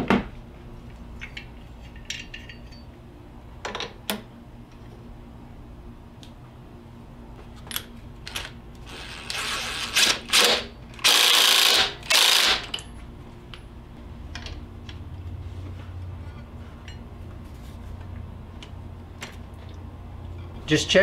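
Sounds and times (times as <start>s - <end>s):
impact wrench bursts: 8.9s - 12.8s.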